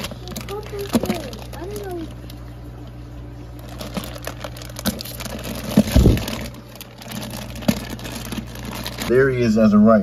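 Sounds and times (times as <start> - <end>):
plastic bag crinkling: 0.0 - 9.1
steady low hum: 0.0 - 10.0.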